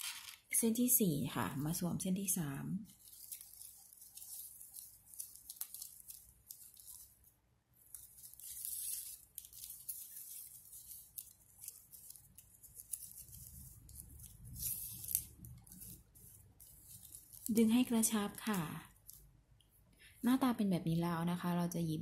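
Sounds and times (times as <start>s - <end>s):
ribbon strips rustling: 0.0s - 0.5s, 2.8s - 19.7s.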